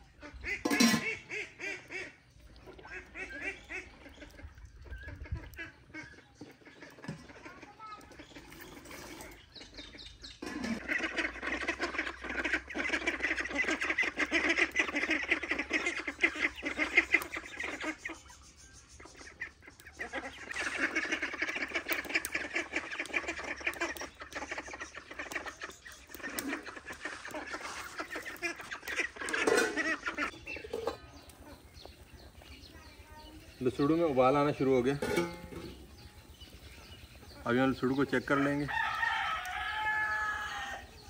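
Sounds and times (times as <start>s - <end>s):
poultry calling: 0.0s - 41.0s.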